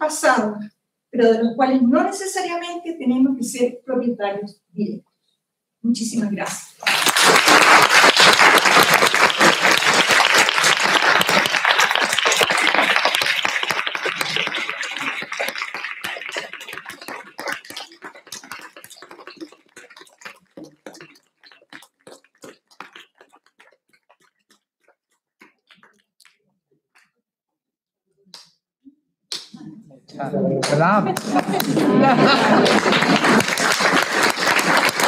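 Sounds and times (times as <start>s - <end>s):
audience applauding: 6.8s - 23.7s, 30.6s - 35.0s.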